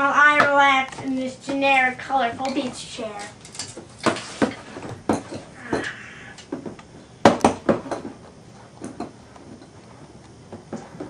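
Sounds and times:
objects knocking and clinking: 2.5 - 8.2.

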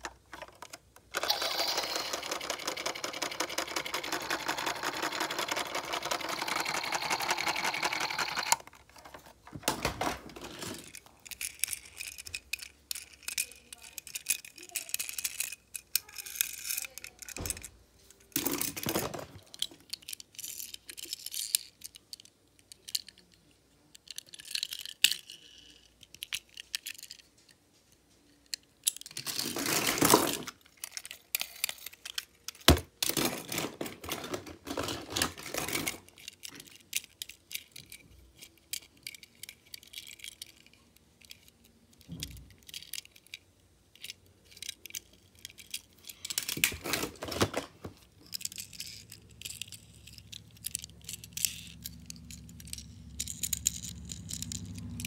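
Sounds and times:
toy cars clattering in plastic bin: 18.3 - 21.5, 28.9 - 40.6, 44.5 - 55.0.

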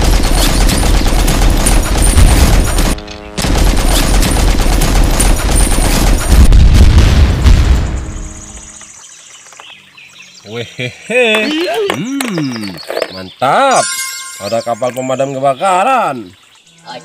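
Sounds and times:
machine-gun fire: 0.0 - 8.2.

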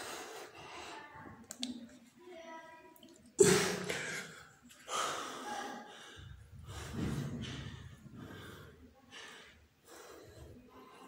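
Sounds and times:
man breathing hard: 3.9 - 11.0.

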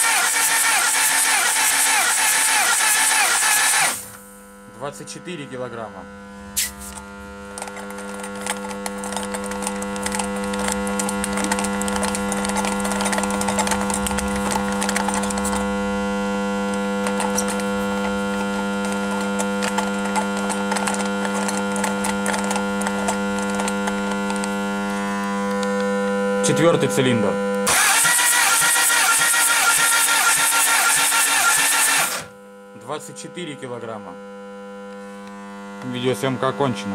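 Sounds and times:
electrical mains hum: 3.9 - 27.7, 32.1 - 36.9.

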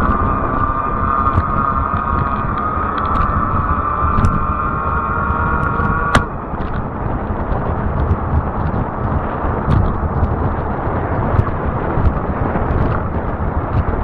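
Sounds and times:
electric motor whining: 0.0 - 8.8
wind and tyres on pavement: 0.0 - 14.0.

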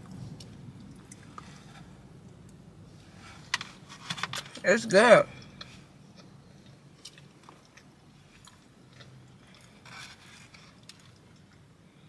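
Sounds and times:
person chewing: 5.4 - 11.6.

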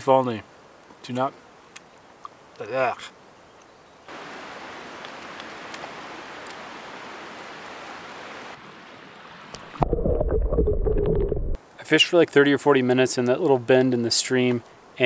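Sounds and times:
mountain stream running: 4.1 - 9.9
muffled underwater rumble: 9.8 - 11.6.

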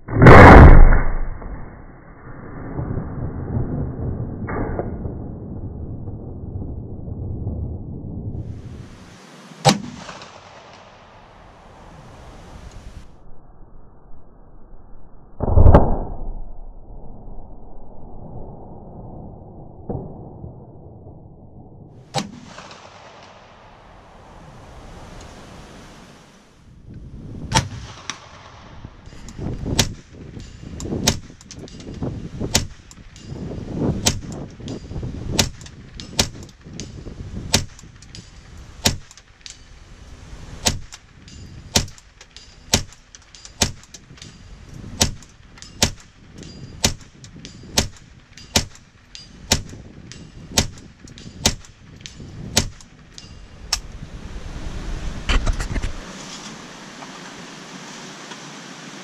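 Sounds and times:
rifle shots echoing: 9.6 - 11.6, 22.0 - 24.1.

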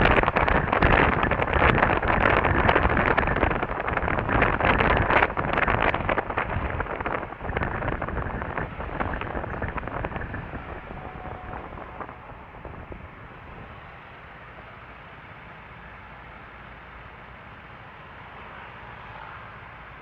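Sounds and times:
wind buffeting microphone: 0.0 - 14.8
steady low rumble: 0.0 - 18.0.

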